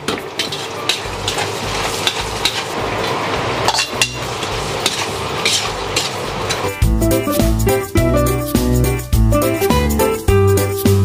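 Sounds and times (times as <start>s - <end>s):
metal ladle scraping wok: 0.0s - 6.8s
shrimp sizzling in wok: 0.0s - 8.8s.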